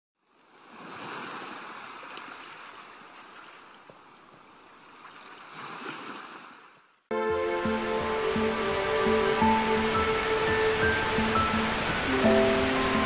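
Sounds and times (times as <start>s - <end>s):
sea waves washing on beach: 0.3s - 6.8s, 7.6s - 13.0s.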